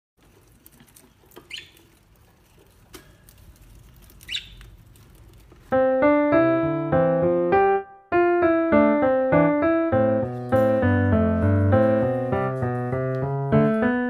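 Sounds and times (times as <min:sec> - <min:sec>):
faint clicks and rustling: 0:00.2 - 0:05.8
lovebird chirps: 0:01.5 - 0:01.8, 0:04.2 - 0:04.6
electric piano music: 0:05.6 - 0:14.0.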